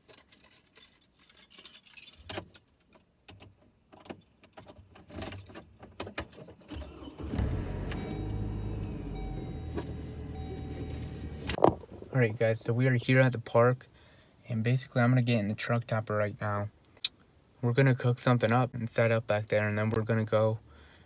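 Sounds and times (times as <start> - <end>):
keys jangling: 0.0 - 3.0
truck engine starting and running: 6.7 - 12.1.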